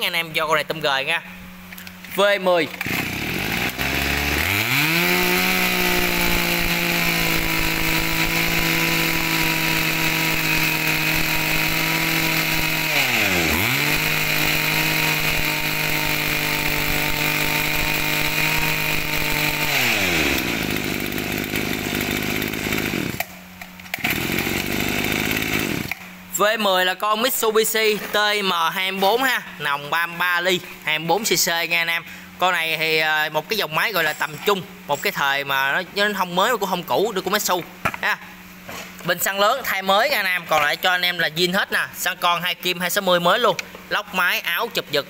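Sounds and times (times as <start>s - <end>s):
brush cutter engine revving: 1.7s - 26.4s.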